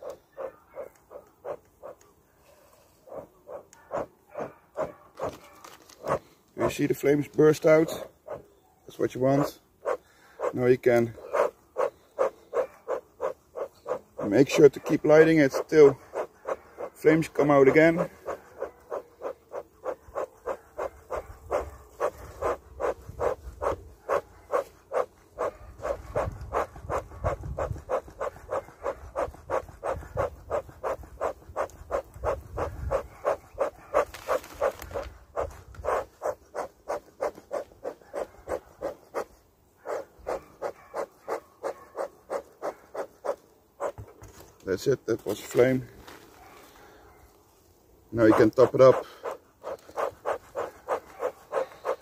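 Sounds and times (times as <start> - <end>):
bellows puffing air: 15.5 - 44.2, 48.3 - 52.0.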